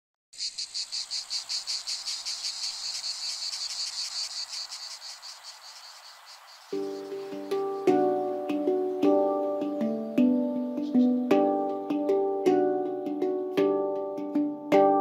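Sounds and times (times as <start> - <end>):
high-pitched insect-like chirping: 0.3 - 12.0
soft music: 6.8 - 15.0.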